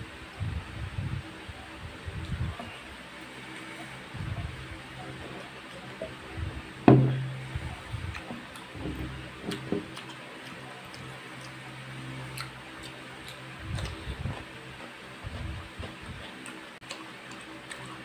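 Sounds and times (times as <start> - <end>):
glass set down with knock: 6.9 - 7.3
eating mouth sounds: 7.2 - 18.0.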